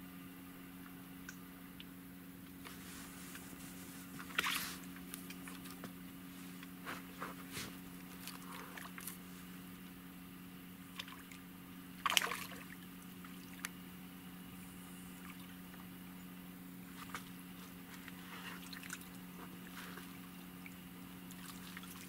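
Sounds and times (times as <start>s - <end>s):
steady low hum: 0.0s - 22.0s
faint small ticks and splashes: 4.2s - 6.0s, 7.9s - 10.0s, 10.8s - 14.0s, 15.1s - 22.0s
splash on pond surface: 12.0s - 13.6s.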